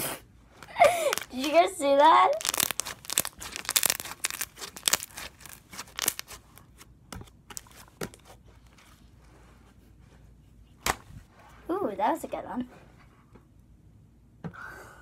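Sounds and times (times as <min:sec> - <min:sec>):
slime squished by hand: 0:02.3 - 0:06.8.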